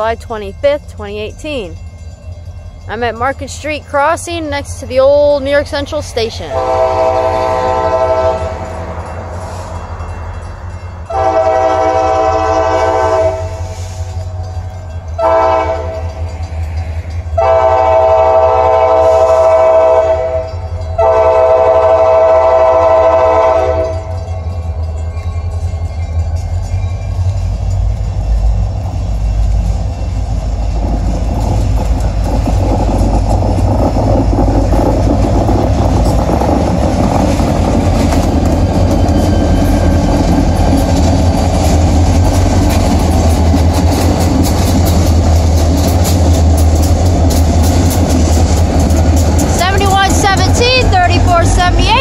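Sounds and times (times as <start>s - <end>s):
locomotive rumble: 0.0s - 52.0s
locomotive air horn: 6.5s - 8.7s, 11.1s - 14.0s, 15.2s - 16.1s, 17.4s - 24.1s.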